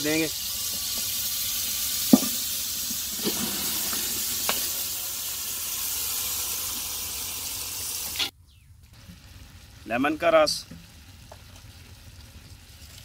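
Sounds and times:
chicken sizzling in hot oil: 0.0 - 13.0
thump of chickens sliding in: 3.2 - 4.8.

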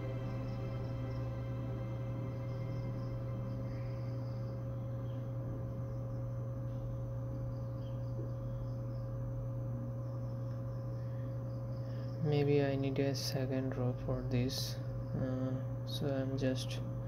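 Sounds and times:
thin high tone: 0.0 - 6.8
steady low hum: 0.0 - 17.0.

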